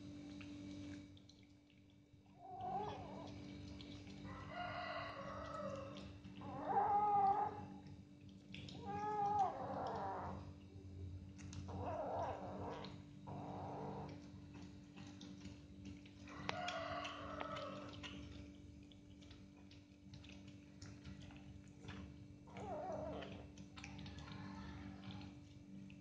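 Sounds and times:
steady low hum: 0:00.0 - 0:26.0
cat meowing: 0:05.4 - 0:07.7, 0:08.7 - 0:10.4.

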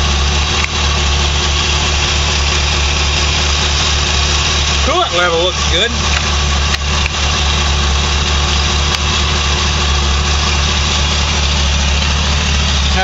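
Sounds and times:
engine idling with a miss: 0:00.0 - 0:13.0.

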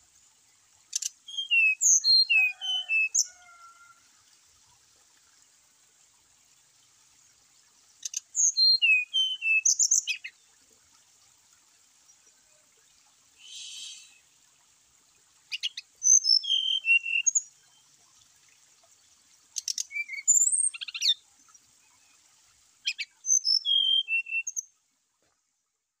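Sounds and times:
bird whistled song: 0:01.0 - 0:03.3, 0:08.0 - 0:10.3, 0:13.4 - 0:14.2, 0:15.5 - 0:17.5, 0:19.6 - 0:21.2, 0:22.8 - 0:24.6
rasping hiss: 0:13.4 - 0:14.2.

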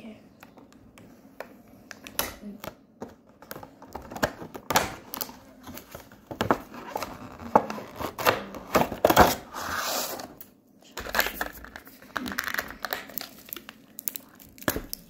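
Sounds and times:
plastic packaging crackling: 0:11.1 - 0:15.0.

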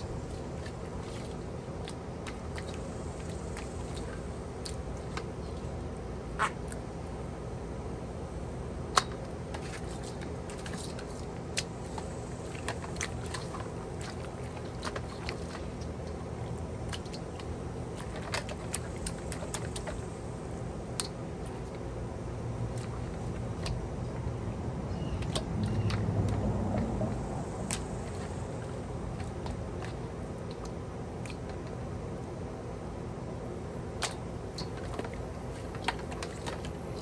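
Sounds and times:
steady low hum: 0:00.0 - 0:37.0
wet handling sounds: 0:08.9 - 0:22.0, 0:22.6 - 0:24.3, 0:25.2 - 0:32.8, 0:33.4 - 0:37.0.

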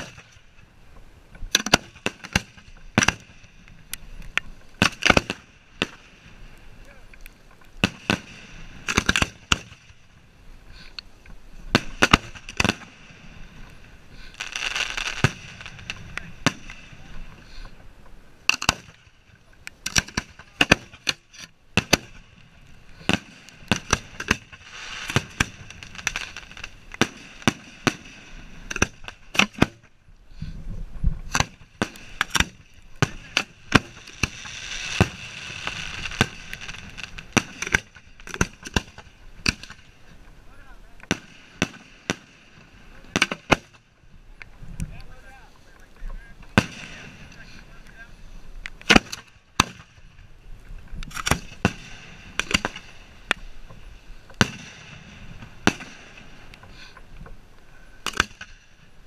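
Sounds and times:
fireworks launching with sharp bangs: 0:00.0 - 0:00.6, 0:01.5 - 0:07.0, 0:07.7 - 0:17.8, 0:18.4 - 0:30.6, 0:31.2 - 0:44.3, 0:46.2 - 0:48.2, 0:48.8 - 0:50.4, 0:51.1 - 0:56.9, 0:58.0 - 0:58.9
hissing sputter of burning fuses: 0:18.4 - 0:29.6.

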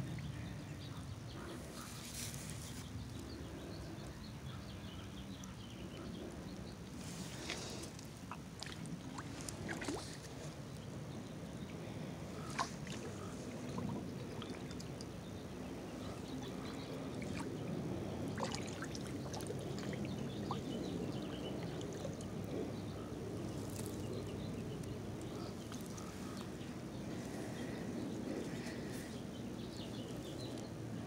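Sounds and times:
pond water sloshing: 0:05.5 - 0:31.0.

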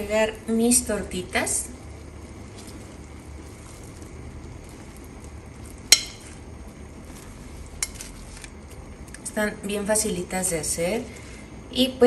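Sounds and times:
broth boiling and bubbling: 0:00.0 - 0:12.0
tongs clinking: 0:05.6 - 0:06.4, 0:07.7 - 0:08.5.

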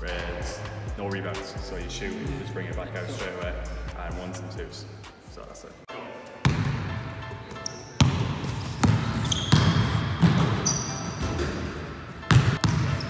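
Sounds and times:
sneakers squeaking on floor: 0:06.4 - 0:13.0
basketball bouncing on wooden floor: 0:08.0 - 0:11.6, 0:12.2 - 0:13.0.

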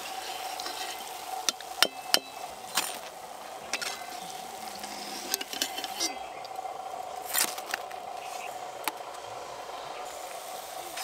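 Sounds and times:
deep-frying sizzle: 0:00.0 - 0:11.0.

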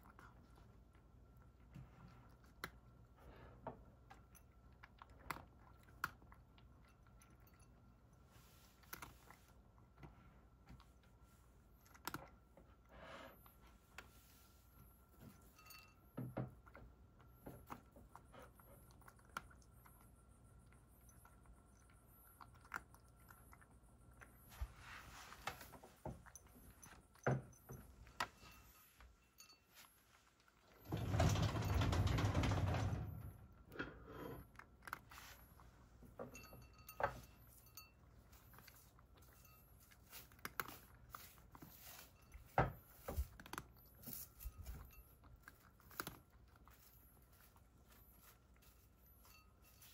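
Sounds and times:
cat crunching dry kibble: 0:00.0 - 0:12.9, 0:16.5 - 0:24.5, 0:33.6 - 0:36.1, 0:38.0 - 0:49.9.

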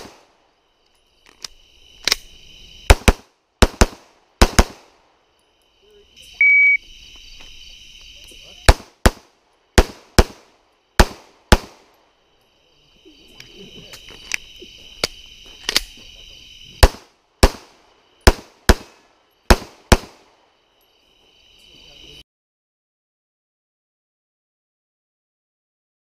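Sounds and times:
magazine change clicks and rattles: 0:01.3 - 0:02.2.

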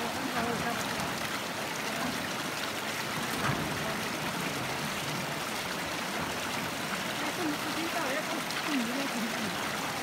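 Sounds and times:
river rushing over rocks: 0:00.0 - 0:10.0.

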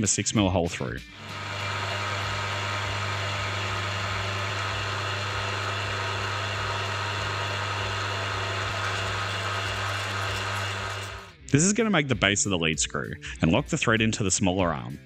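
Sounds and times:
milling machine drilling brass: 0:01.2 - 0:11.3.

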